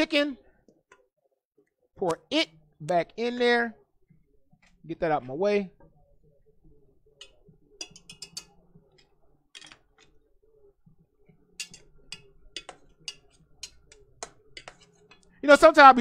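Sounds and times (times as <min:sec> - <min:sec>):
faint low hum: 0:02.0 - 0:15.4
metal utensil clinking on pot: 0:07.2 - 0:10.2, 0:11.5 - 0:15.4.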